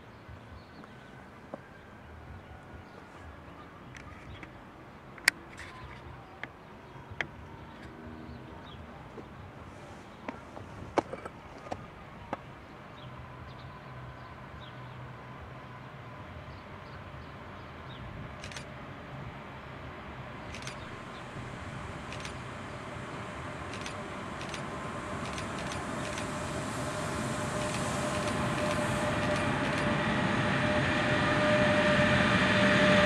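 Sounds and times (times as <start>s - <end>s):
train low rumble: 0.0s - 33.0s
train steady whine: 0.0s - 33.0s
sharp clicks: 18.4s - 18.7s, 22.1s - 22.4s, 23.7s - 26.3s, 27.6s - 29.9s.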